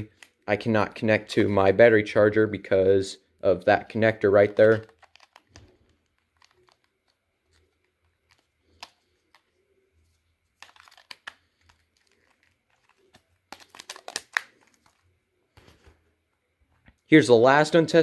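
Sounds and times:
plastic clicks and scrapes: 4.6s - 9.6s, 10.6s - 15.0s.

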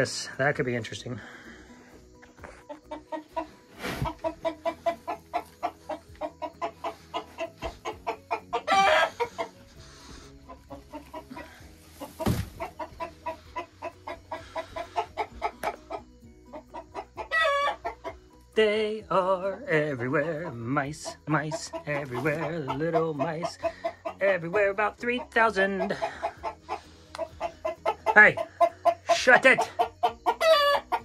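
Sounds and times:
chicken clucking: 2.1s - 18.5s, 19.4s - 31.0s
chicken squawk: 2.7s - 9.6s, 10.5s - 18.2s, 25.8s - 31.0s
dull thumps: 12.0s - 12.8s.

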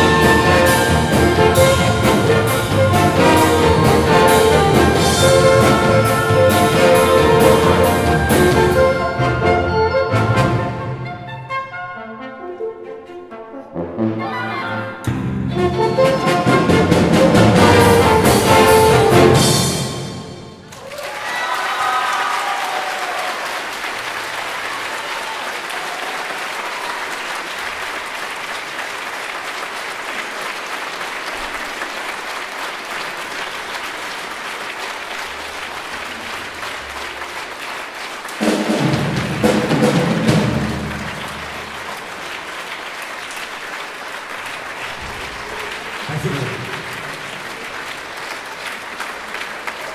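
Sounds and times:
loud instrumental music: 0.0s - 11.3s, 13.7s - 20.7s, 38.4s - 41.2s
audience applauding: 16.1s - 49.9s.

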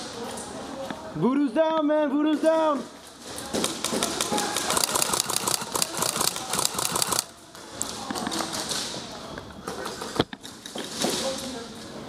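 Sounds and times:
airsoft guns firing: 3.6s - 7.3s.

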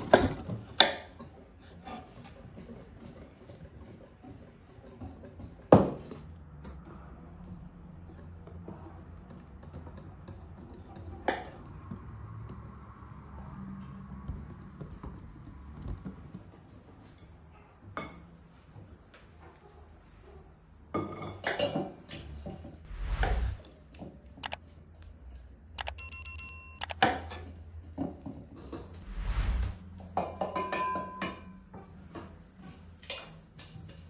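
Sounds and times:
high insect drone: 16.1s - 34.0s.

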